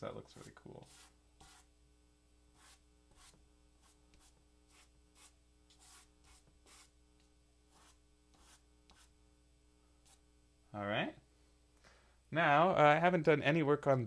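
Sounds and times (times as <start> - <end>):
crayon scratching on paper: 0.4 - 1.7, 2.6 - 6.9, 7.7 - 9.1.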